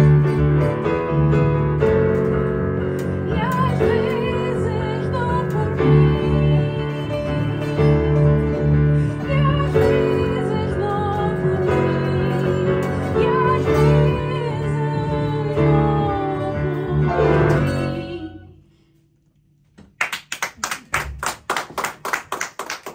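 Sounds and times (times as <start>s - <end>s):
double bass guitar and piano: 0.0s - 19.0s
woman singing: 3.2s - 18.6s
hand clapping: 19.8s - 22.9s.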